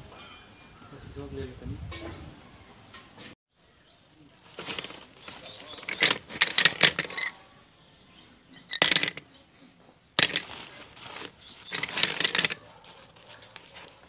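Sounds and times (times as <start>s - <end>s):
steel plates clinking and scraping: 4.6s - 7.5s, 8.5s - 9.5s, 10.2s - 12.6s.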